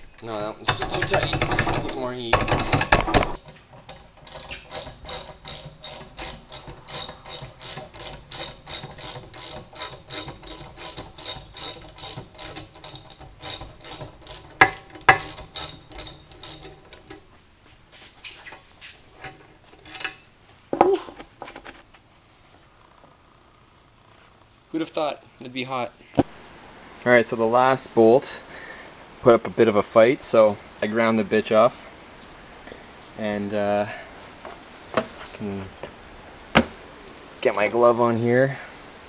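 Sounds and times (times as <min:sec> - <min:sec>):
sharp metal knocks: 0:00.6 - 0:05.8, 0:12.0 - 0:17.1
metal clank: 0:00.6 - 0:08.2, 0:12.8 - 0:17.3.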